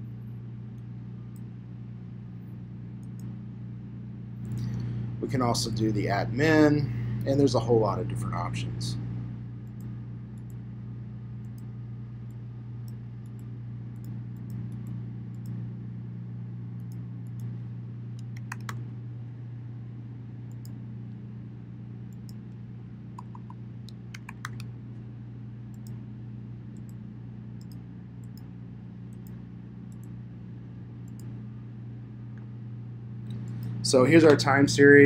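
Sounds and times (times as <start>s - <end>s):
low hum: 0.0s - 35.0s
keyboard typing: 18.2s - 18.8s, 23.2s - 24.7s
mouse clicks: 18.2s - 18.8s, 23.2s - 24.7s.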